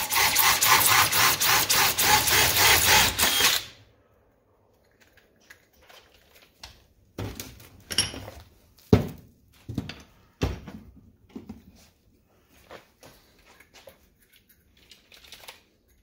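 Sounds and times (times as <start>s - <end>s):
knocks and clunks on workbench: 7.2s - 11.7s.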